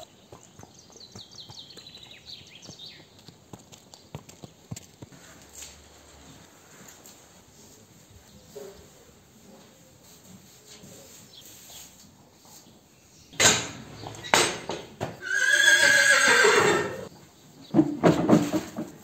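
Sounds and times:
horse whinnying: 15.2s - 17.1s.

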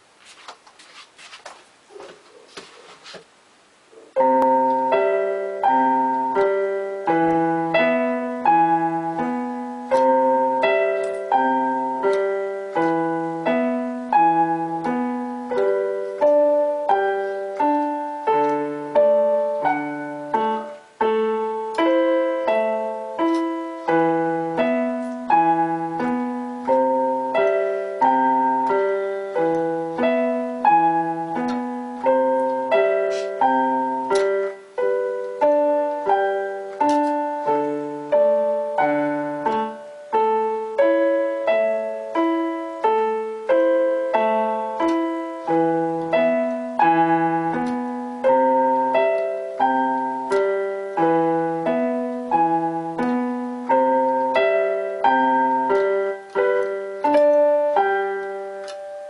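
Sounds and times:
electronic keyboard piano melody: 4.0s - 59.0s.

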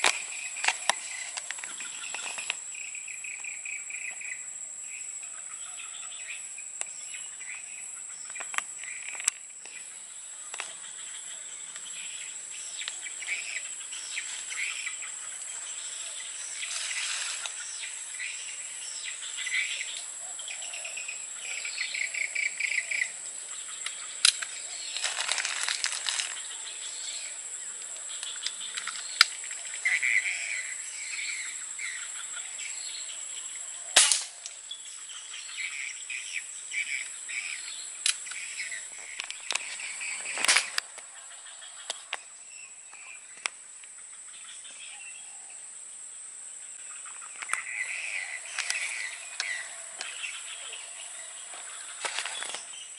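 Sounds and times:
birds chirping: 0.0s - 52.9s
insects droning: 0.0s - 52.9s
sharp cracks: 34.0s - 34.4s.

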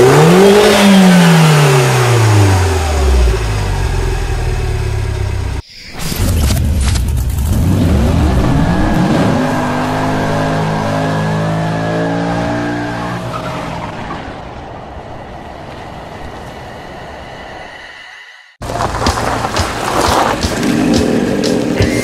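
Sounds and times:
car engine revving: 0.0s - 5.6s, 7.4s - 14.4s, 18.6s - 22.0s.

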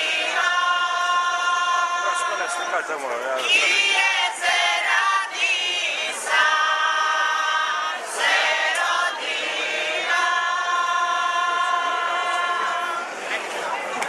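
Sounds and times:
group singing a cappella: 0.0s - 13.3s.

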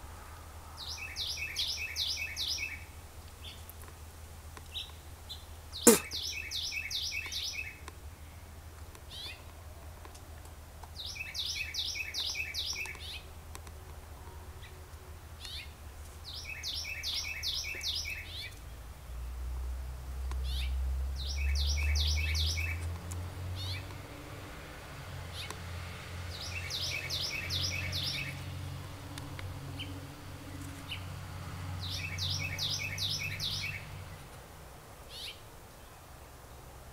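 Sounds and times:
small bird chirping: 4.7s - 7.8s, 11.0s - 13.3s, 15.4s - 18.7s, 20.4s - 22.9s, 26.3s - 28.6s, 31.8s - 34.4s.

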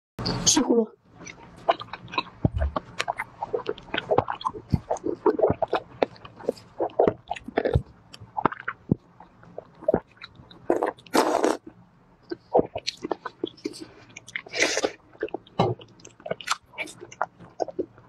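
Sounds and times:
crunchy biting and chewing: 1.2s - 11.7s, 12.3s - 18.0s
wet mouth clicks: 12.3s - 17.9s.

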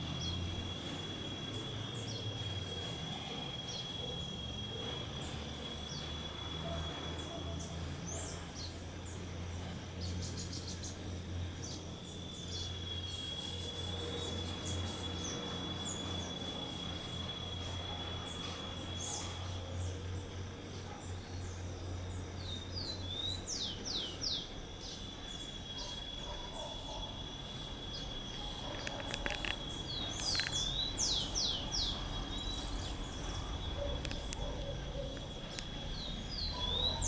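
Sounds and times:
sparrow calling: 27.9s - 37.0s.

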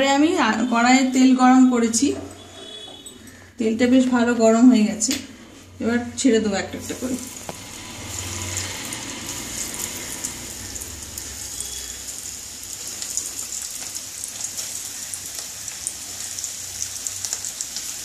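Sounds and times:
food deep-frying in oil: 6.6s - 18.0s
oil spattering crackles: 7.2s - 18.0s.

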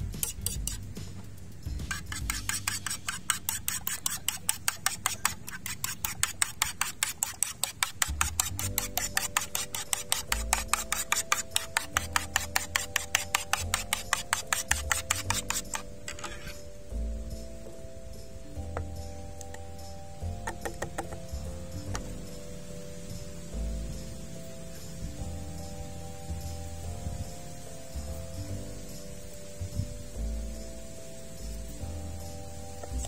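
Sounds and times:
fork beating eggs in a plate: 0.0s - 1.0s, 1.7s - 16.6s.

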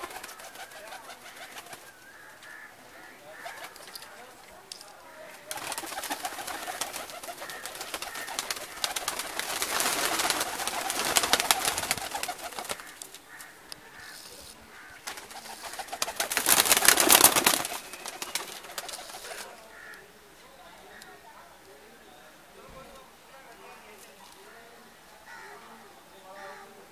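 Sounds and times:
loud rustling: 5.5s - 19.5s
pigeons cooing: 5.5s - 19.6s.

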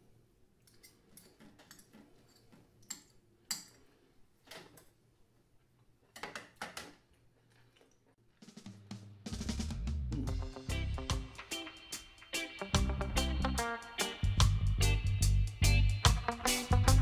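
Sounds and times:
cutlery clinking against bowl: 0.6s - 3.9s.

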